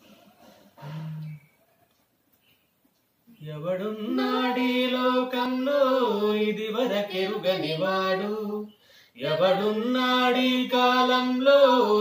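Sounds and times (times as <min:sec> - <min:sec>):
woman singing unaccompanied: 0:03.4 - 0:12.0.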